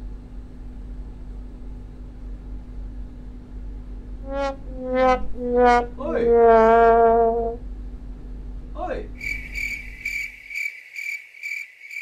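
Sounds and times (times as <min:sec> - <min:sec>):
steady low hum: 0:00.0 - 0:10.5
short horn-like notes: 0:04.2 - 0:07.6.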